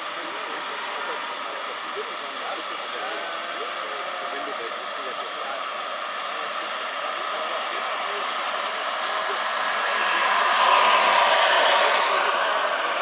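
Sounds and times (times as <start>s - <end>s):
helicopter rotor noise: 0.0s - 13.0s
helicopter turbine whine: 0.0s - 13.0s.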